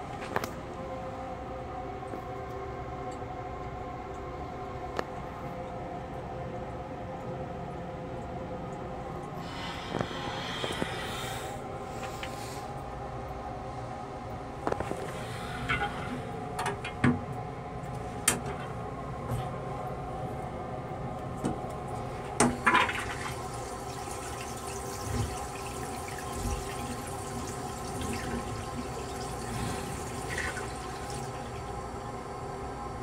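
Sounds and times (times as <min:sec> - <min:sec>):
toilet flush rushing: 0:14.8 - 0:17.3, 0:21.9 - 0:33.0.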